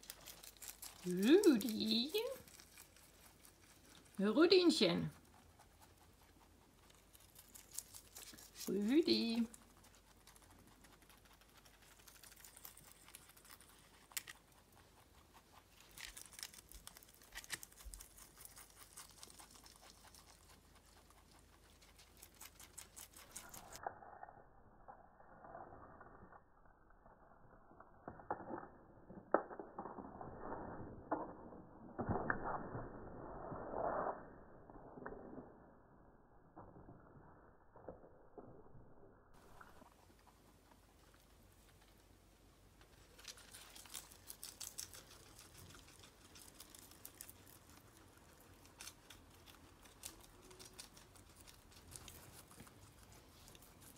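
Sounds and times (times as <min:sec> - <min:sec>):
animals munching leaves: 0:00.0 - 0:36.2, 0:39.4 - 0:53.9.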